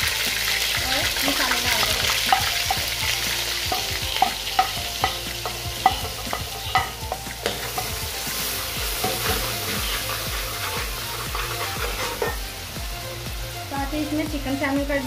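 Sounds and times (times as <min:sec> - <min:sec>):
spices sizzling in hot oil: 0:00.0 - 0:15.0
metal ladle scraping pot: 0:09.0 - 0:12.5.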